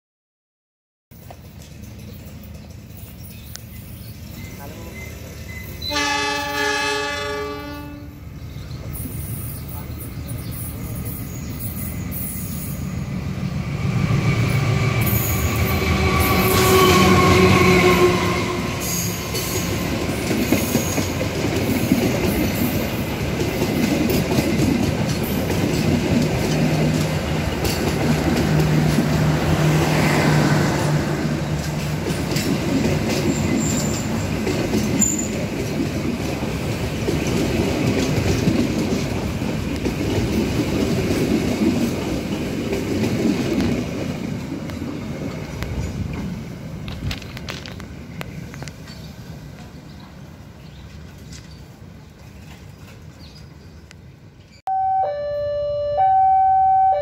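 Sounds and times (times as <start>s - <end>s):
wheels clacking over rail joints: 1.2s - 5.6s, 18.7s - 54.6s
train wheel squeal: 1.2s - 6.6s, 8.2s - 13.3s, 14.5s - 23.0s, 33.1s - 35.5s
diesel locomotive passing: 1.2s - 57.0s.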